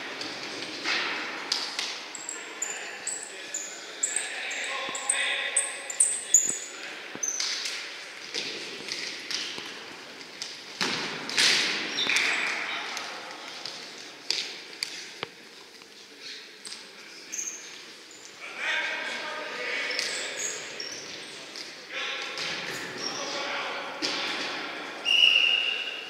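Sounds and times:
shoes squeaking on court floor: 0.1s - 12.6s, 16.1s - 18.4s, 19.8s - 21.8s.

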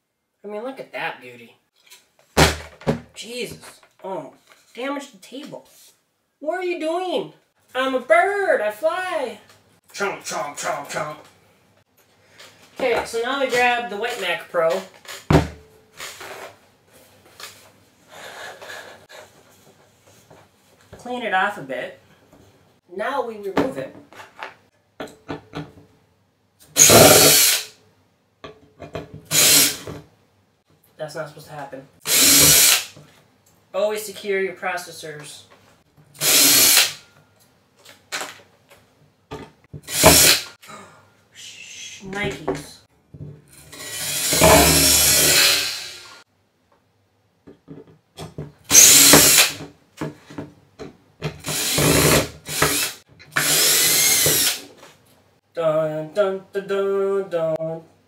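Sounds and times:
cordless drill running: 26.8s - 27.7s, 29.3s - 29.9s, 32.1s - 32.9s, 36.2s - 37.0s, 39.9s - 40.5s, 43.7s - 46.2s, 48.7s - 49.6s, 51.4s - 54.6s.

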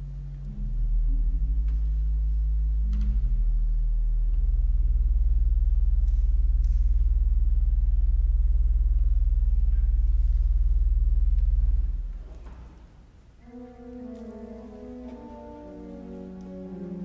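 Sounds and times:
pipe organ deep low note: 0.0s - 12.5s.

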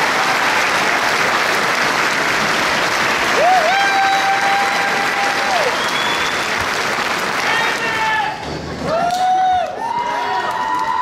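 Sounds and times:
crowd clapping: 0.0s - 11.0s
person whooping: 3.4s - 6.1s.

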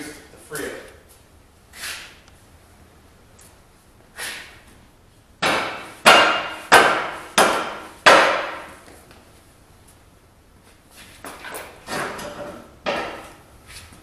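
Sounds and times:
rubber mallet striking metal: 5.4s - 8.7s.

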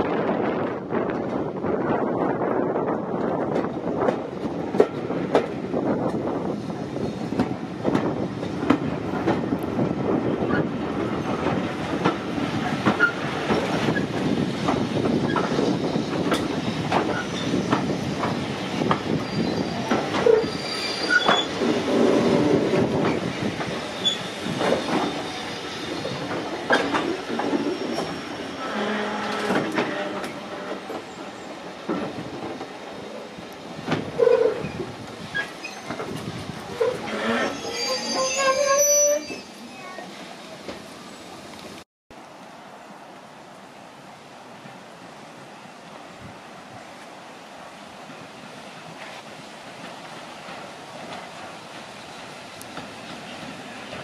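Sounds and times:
train wheels rumbling on rails: 0.0s - 43.3s, 43.9s - 54.0s
wheel squeals: 17.0s - 17.9s, 19.1s - 22.5s, 23.1s - 30.8s, 34.2s - 39.7s.

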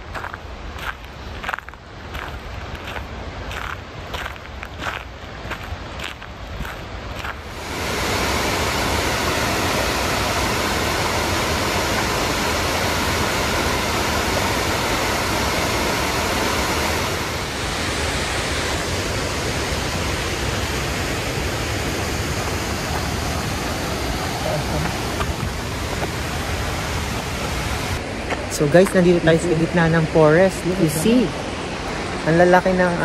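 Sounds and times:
waterfall rushing: 7.1s - 33.0s.

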